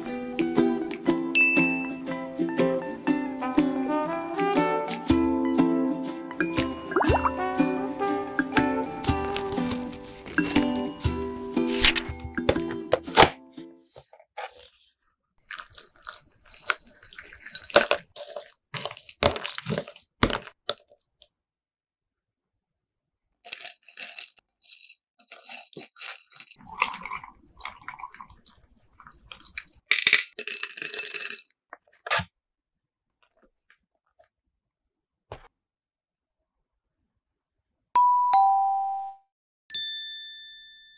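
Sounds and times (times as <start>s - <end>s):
snack box crackling and rustling: 9.1s - 11.0s, 15.6s - 21.2s.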